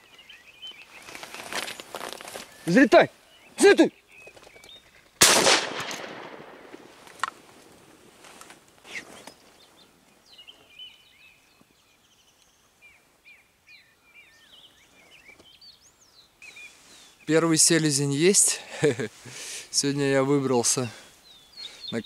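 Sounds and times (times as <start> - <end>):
small birds chirping: 0.0 - 5.2, 8.8 - 22.0
shotgun shot with echo: 5.2 - 6.8.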